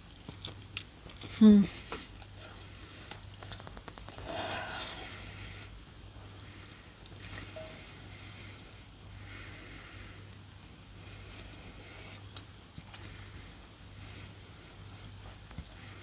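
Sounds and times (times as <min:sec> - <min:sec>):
low electrical hum: 0:00.0 - 0:16.0
person chewing: 0:00.1 - 0:02.4
heavy breaths through nose: 0:01.7 - 0:16.0.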